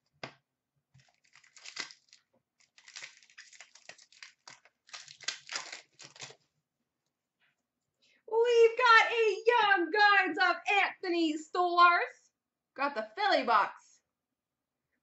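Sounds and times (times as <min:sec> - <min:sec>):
foil wrappers crinkling and tearing: 0:01.0 - 0:06.4.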